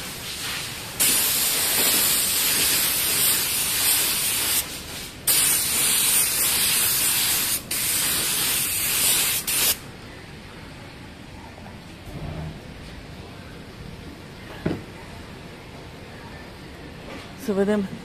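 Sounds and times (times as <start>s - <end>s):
spray gun hissing: 0.0s - 9.8s.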